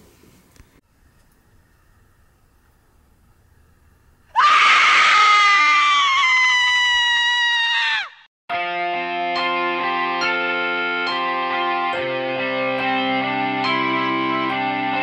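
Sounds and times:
high-pitched human scream: 0:04.3 - 0:08.3.

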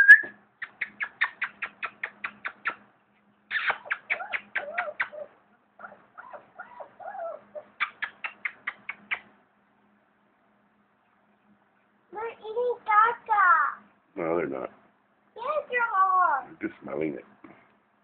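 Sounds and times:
rapid kissing smacks: 0:00.6 - 0:02.9, 0:03.5 - 0:05.3, 0:07.8 - 0:09.3.

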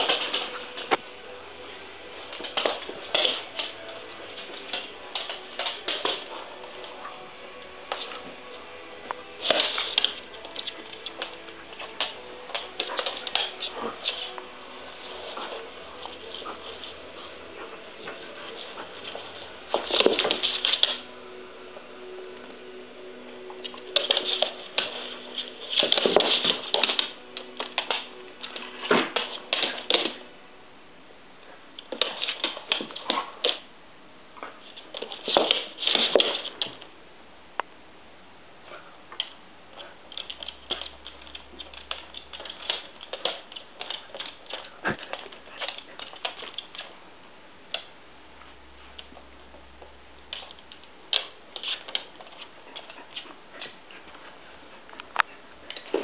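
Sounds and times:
claws clicking on hardwood floor: 0:24.0 - 0:30.2, 0:34.8 - 0:36.8, 0:39.2 - 0:46.9, 0:50.3 - 0:54.2.

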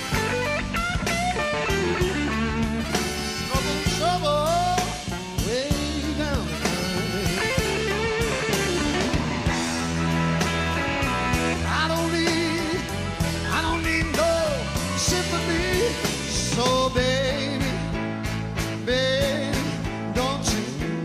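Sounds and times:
bending electric guitar: 0:00.0 - 0:21.0
blues-rock song: 0:00.0 - 0:21.0
steady drum beat: 0:00.0 - 0:21.0.

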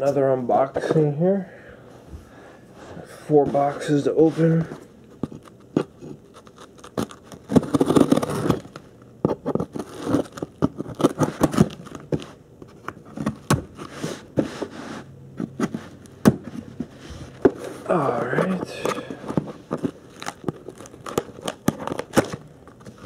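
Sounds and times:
knife scraping packing tape: 0:05.7 - 0:08.7, 0:09.4 - 0:11.9.

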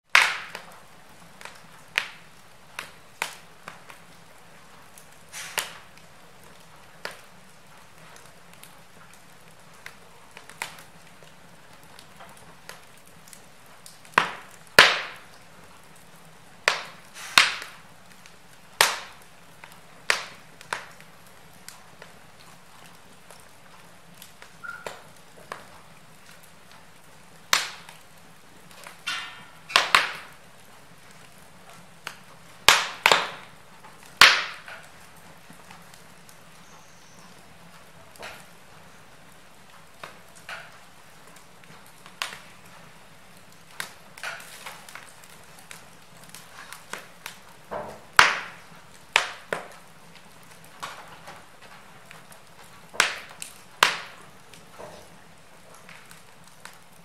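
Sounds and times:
wood fire crackling: 0:00.0 - 0:57.0
faint hiss: 0:00.7 - 0:06.4, 0:15.0 - 0:20.4.

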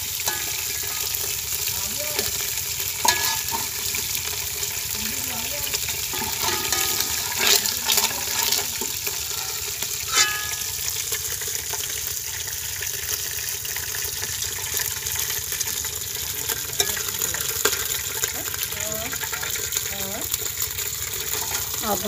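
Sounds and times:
oil sizzling in a pot: 0:00.0 - 0:22.0
ladle clinking against pot: 0:00.3 - 0:01.2, 0:03.0 - 0:03.8, 0:06.1 - 0:10.9.

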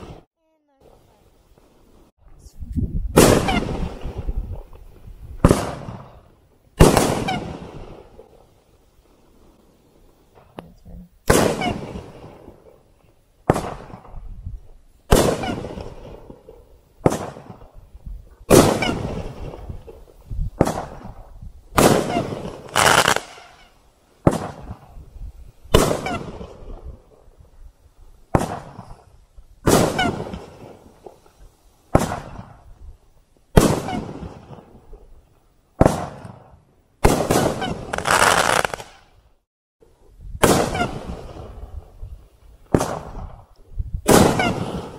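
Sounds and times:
firework cake bangs: 0:15.1 - 0:17.7, 0:20.6 - 0:23.5, 0:24.2 - 0:25.0, 0:28.3 - 0:29.0, 0:31.9 - 0:32.6, 0:35.8 - 0:39.0.

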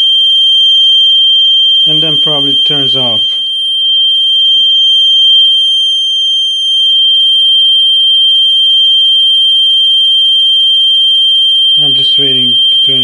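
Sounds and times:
continuous high-pitched beeper tone: 0:01.8 - 0:07.2, 0:11.8 - 0:13.0.

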